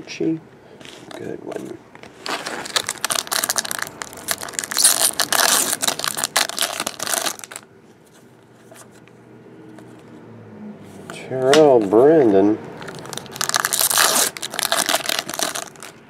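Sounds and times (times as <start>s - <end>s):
foil wrapper crinkling and tearing: 2.2s - 7.7s, 12.8s - 16.0s.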